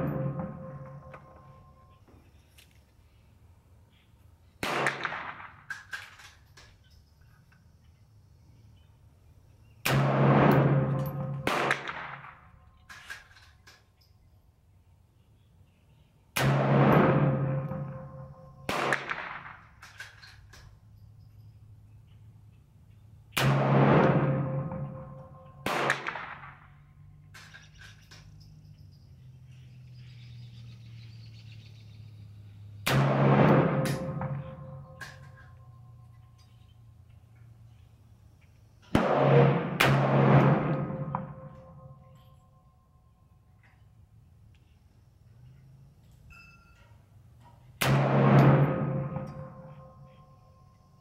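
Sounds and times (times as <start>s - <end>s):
rifle shots with echo: 0.0s - 1.9s, 4.6s - 6.3s, 9.8s - 13.1s, 16.4s - 20.2s, 23.4s - 27.0s, 32.8s - 35.5s, 38.8s - 42.0s, 47.8s - 50.2s
pistol gunshot: 4.6s - 5.7s, 9.8s - 12.5s, 16.4s - 19.8s, 23.4s - 26.7s, 32.8s - 35.2s, 38.9s - 41.5s, 47.8s - 49.7s
light metallic clinks: 5.7s - 8.9s, 12.7s - 14.4s, 19.8s - 23.1s, 27.0s - 30.8s, 34.6s - 38.6s, 41.6s - 47.7s.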